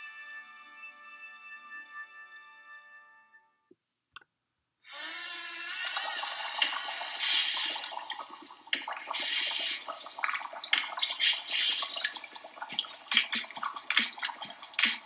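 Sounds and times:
rain hissing: 6.3s - 8.4s, 9.1s - 10.2s, 10.9s - 15.0s
splashy hissing bursts and clicks: 6.6s - 15.0s.

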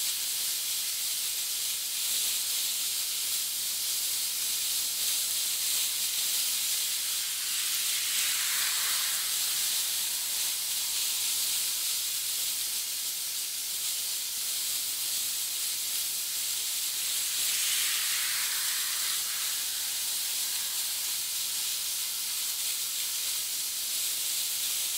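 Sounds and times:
sea surf washing on shore: 6.7s - 12.0s, 16.9s - 22.4s.

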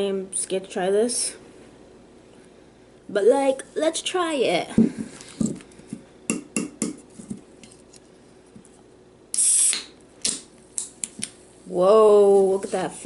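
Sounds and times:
can opening hiss: 9.3s - 10.9s.

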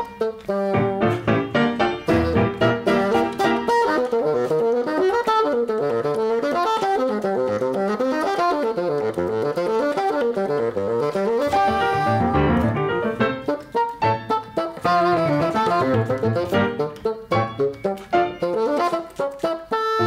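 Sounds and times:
bassoon: 0.0s - 20.0s
piano: 0.0s - 20.0s.

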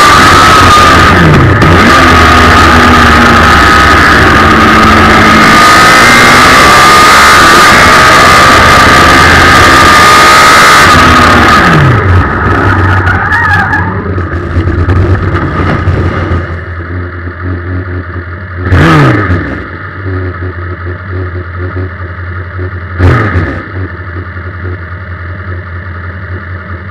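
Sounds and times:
motorcycle engine revving: 0.0s - 26.9s
gravel clatter: 11.0s - 16.9s.

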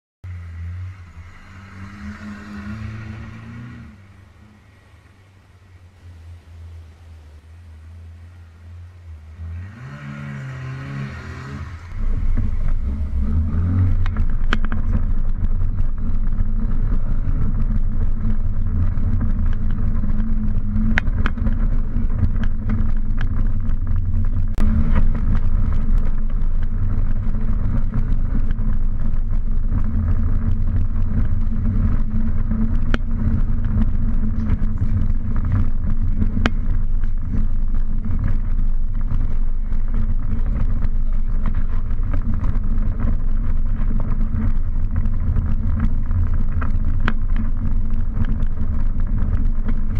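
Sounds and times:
car engine and road rumble: 0.2s - 49.9s
gravel ticking on car: 11.6s - 49.9s.

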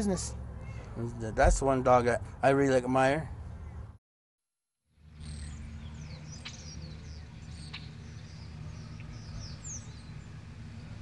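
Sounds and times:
small birds chirping: 0.0s - 1.8s, 5.1s - 11.0s.

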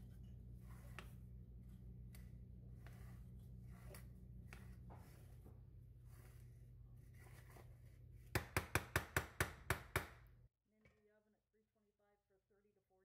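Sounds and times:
spatula scraping batter: 0.0s - 8.3s.

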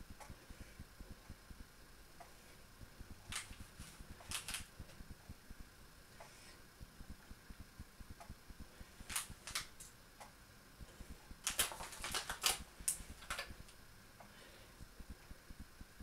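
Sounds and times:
aluminium foil tray crinkling: 3.3s - 4.7s, 9.0s - 9.9s, 11.4s - 13.6s.

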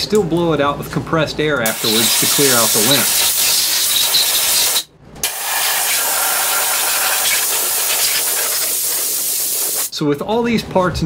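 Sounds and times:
compressed air blow gun hissing: 1.7s - 9.9s.

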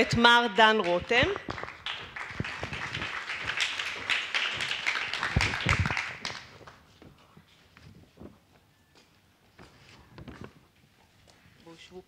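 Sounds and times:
audience applauding: 1.4s - 6.8s.

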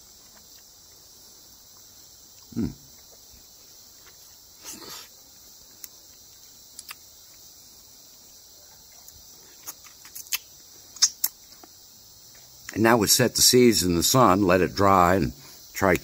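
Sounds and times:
insect chorus: 0.0s - 16.0s
lip-smacks and sucking: 5.8s - 7.1s, 8.9s - 11.8s
mouth clicks: 6.8s - 7.0s, 8.9s - 11.4s.

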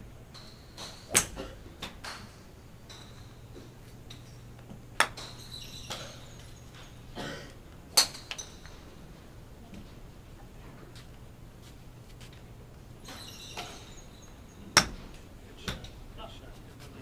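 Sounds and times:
golf club striking ball: 0.8s - 2.3s, 7.9s - 8.7s.

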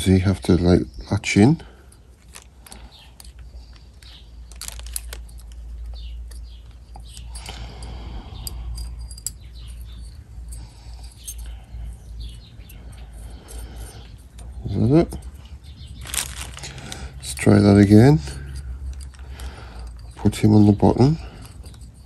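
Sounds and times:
small metallic clicks and ticks: 1.9s - 22.0s.

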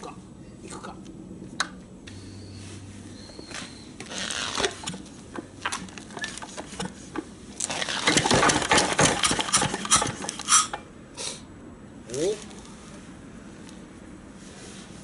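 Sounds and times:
diesel engine hand-cranked: 4.0s - 10.9s
diesel engine starting with knocks: 7.8s - 10.8s.

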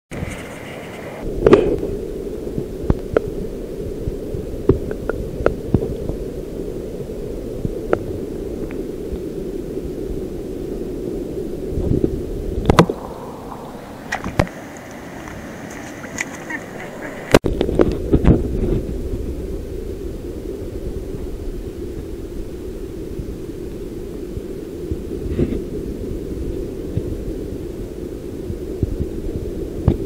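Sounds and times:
muffled underwater water wash: 0.1s - 30.0s
airy hiss: 0.2s - 17.4s.

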